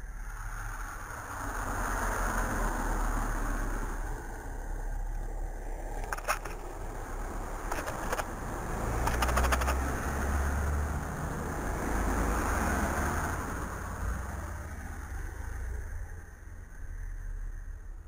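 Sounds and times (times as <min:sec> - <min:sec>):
passing traffic engine: 0:00.0 - 0:18.0
light clicks: 0:09.0 - 0:09.9.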